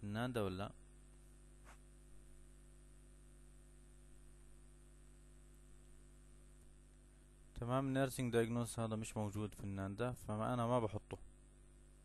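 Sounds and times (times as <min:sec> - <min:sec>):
recording hiss: 0:00.0 - 0:02.3, 0:05.8 - 0:12.0
faint steady hum: 0:00.0 - 0:12.0.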